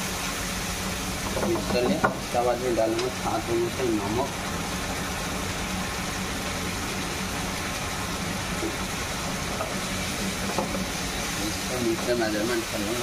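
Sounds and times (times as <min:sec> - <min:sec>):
curry bubbling in a pan: 0:00.0 - 0:13.0
gas burner hum and hiss: 0:00.0 - 0:13.0.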